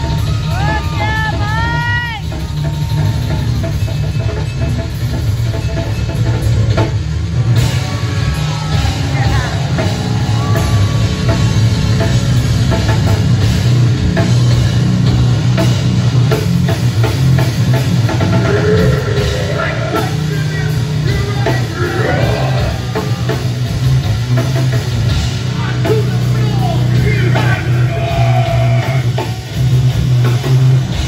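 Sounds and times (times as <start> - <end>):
bass guitar: 0.0 - 31.0
pounding drum kit: 0.0 - 31.0
electric guitar: 7.5 - 31.0.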